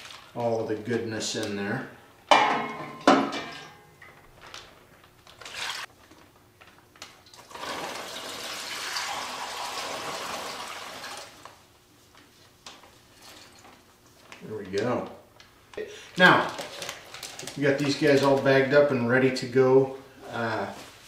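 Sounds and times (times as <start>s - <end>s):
liquid pouring into plastic bag: 0.0s - 0.5s, 4.3s - 11.6s.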